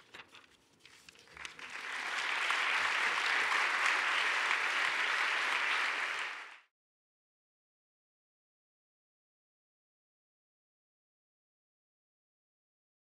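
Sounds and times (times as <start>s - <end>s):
audience applause: 1.2s - 6.7s.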